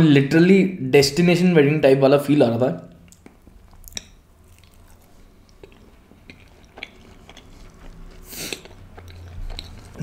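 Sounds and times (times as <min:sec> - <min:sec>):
close chewing: 0:03.1 - 0:10.0.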